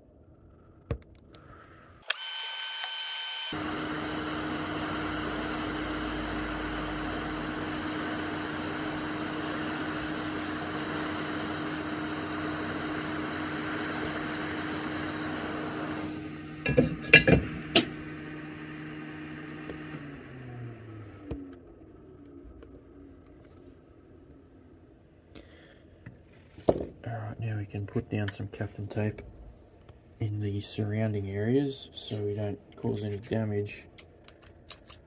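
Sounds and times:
hot air blower rushing: 2.0s - 21.4s.

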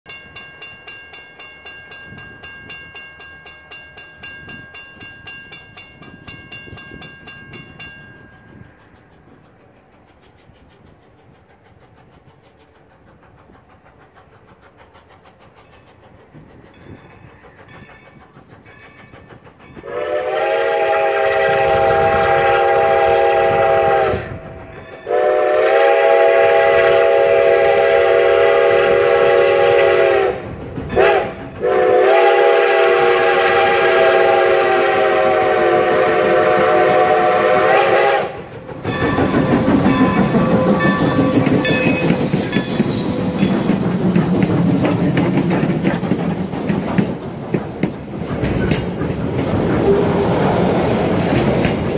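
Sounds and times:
distant train rumble: 0.0s - 51.9s
steam whistle blasts: 19.8s - 30.4s, 31.0s - 42.1s.

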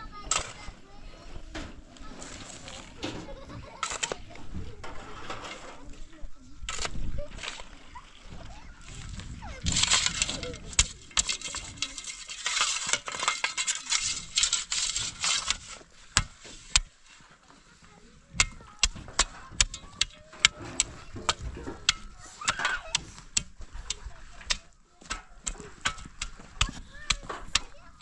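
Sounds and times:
shovel scraping soil: 0.2s - 0.8s, 2.0s - 7.9s, 8.8s - 28.0s
shovel clinking on stones: 9.6s - 15.8s.

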